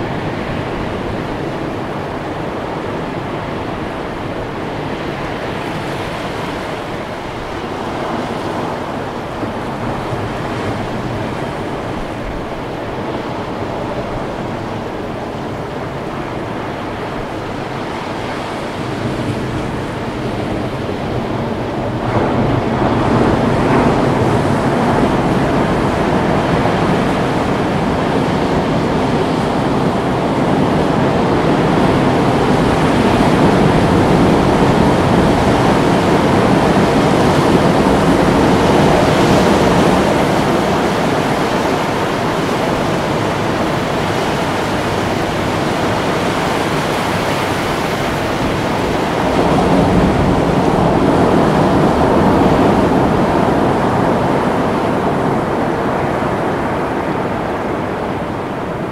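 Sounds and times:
ocean surf rushing on shore: 0.0 - 58.9.

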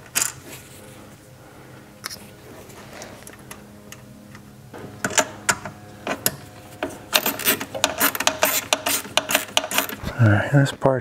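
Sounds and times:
ratchet driver clicking: 7.2 - 10.0.

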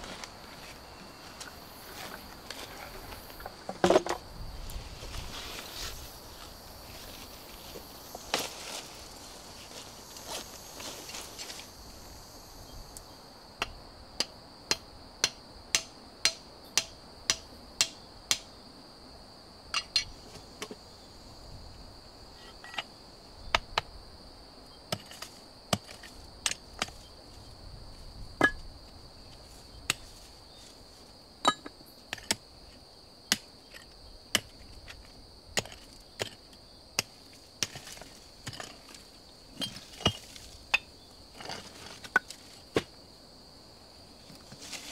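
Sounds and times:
insects buzzing: 0.0 - 44.9
hand tool striking rocky soil: 24.9 - 27.0, 28.4 - 28.7, 31.4 - 32.4, 33.3 - 35.0, 35.6 - 39.0, 39.6 - 43.0.

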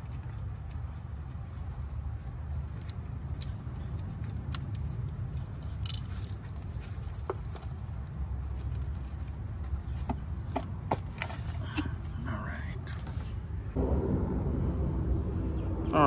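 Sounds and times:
low rumble: 13.5 - 16.0.

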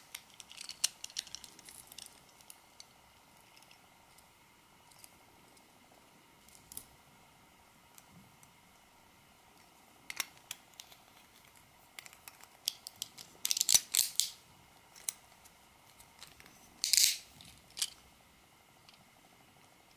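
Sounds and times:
plastic parts clicking: 0.1 - 2.6, 10.1 - 14.4, 16.2 - 18.0.

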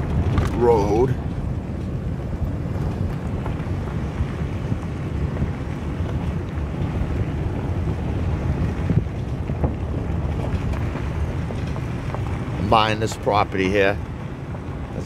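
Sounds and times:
tyres rumbling on dirt road: 0.0 - 15.0
wind buffeting microphone: 0.0 - 15.0.

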